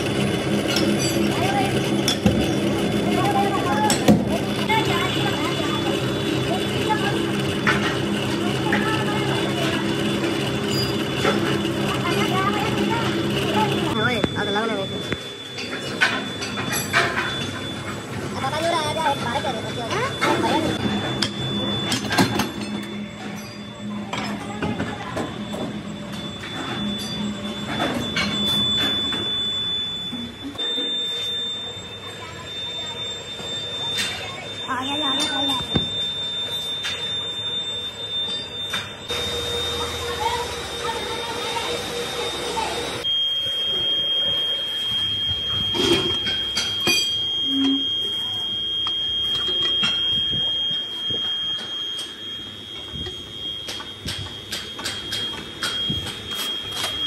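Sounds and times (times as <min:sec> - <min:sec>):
mixer motor pulsing hum: 0:00.0 - 0:15.6, 0:38.9 - 0:57.0
high whine: 0:00.0 - 0:57.0.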